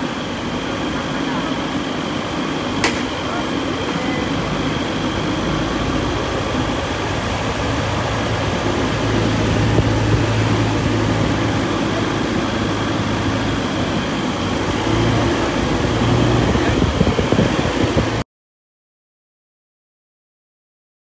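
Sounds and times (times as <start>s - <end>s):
car engine and tyre rumble: 5.3s - 18.2s.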